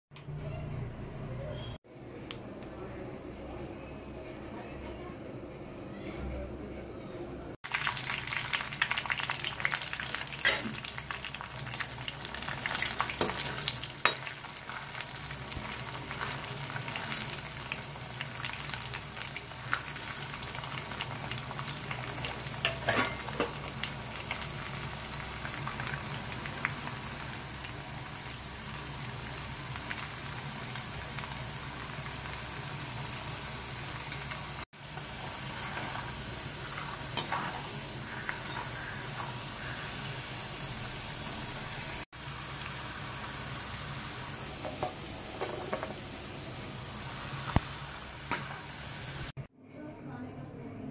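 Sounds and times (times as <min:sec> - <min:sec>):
fries sizzling in hot oil: 0:07.6 - 0:49.4
metal spatula stirring: 0:35.6 - 0:39.4.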